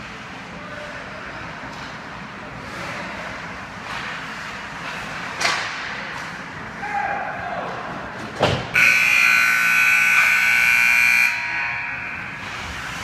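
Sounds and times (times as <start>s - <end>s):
hockey sticks hitting puck: 1.6s - 6.8s
skate blades scraping ice: 2.6s - 6.4s.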